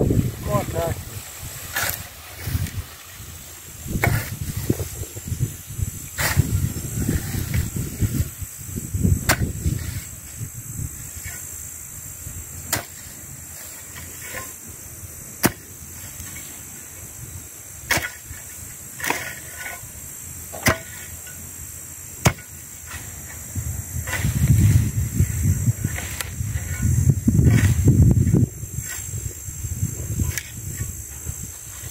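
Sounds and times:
hoe dragging through weeds: 0:00.0 - 0:05.4, 0:06.0 - 0:08.3, 0:22.8 - 0:29.2, 0:31.5 - 0:31.9
steady high hiss: 0:00.0 - 0:31.9.

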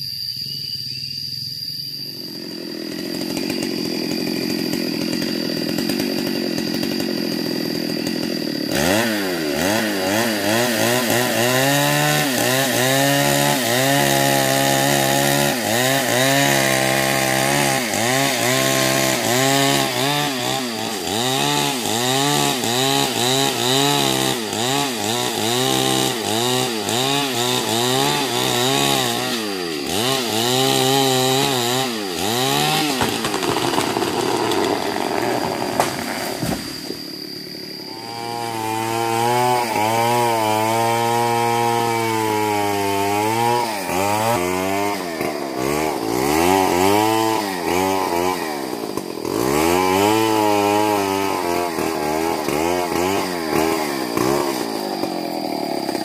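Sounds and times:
chainsaw cutting wood: 0:02.2 - 0:56.0.

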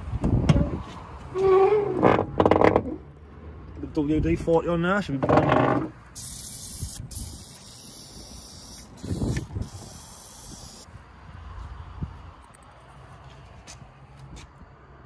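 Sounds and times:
aerosol can spraying hiss: 0:06.2 - 0:10.9.

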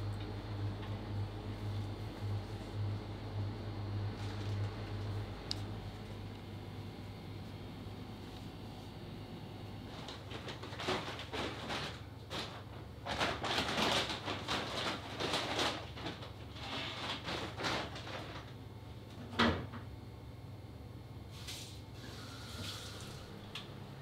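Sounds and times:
low steady hum: 0:00.0 - 0:10.8.

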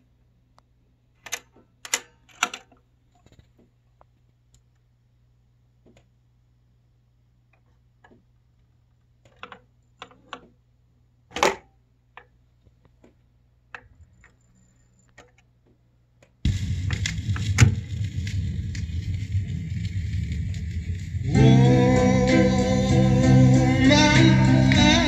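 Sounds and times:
music from a record: 0:16.5 - 0:25.0.

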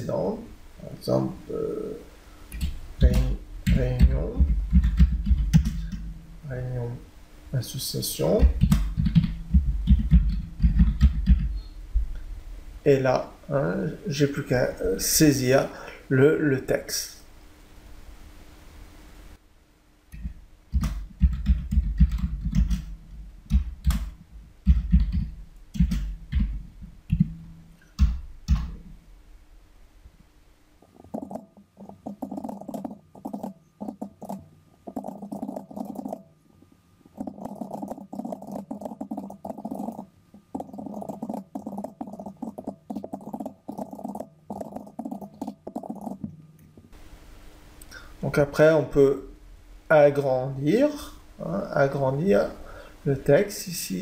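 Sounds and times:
rapid typing on keyboard: 0:03.1 - 0:06.0, 0:08.4 - 0:11.6, 0:20.2 - 0:22.9, 0:23.5 - 0:27.2, 0:31.0 - 0:36.3, 0:37.2 - 0:46.3.

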